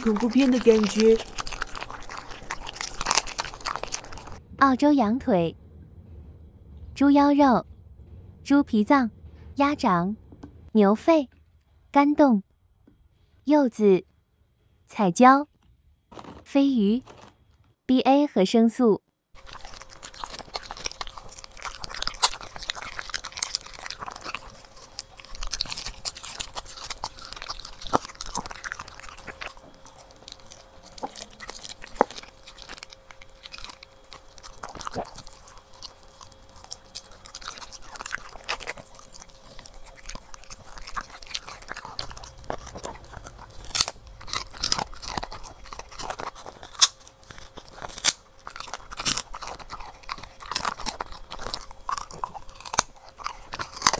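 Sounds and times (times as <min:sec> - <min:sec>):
dog chewing food: 0:00.0 - 0:04.4, 0:16.1 - 0:16.4, 0:17.0 - 0:17.5, 0:19.4 - 0:53.9
sharp crunches: 0:00.0 - 0:04.4, 0:16.1 - 0:17.6, 0:19.4 - 0:53.9.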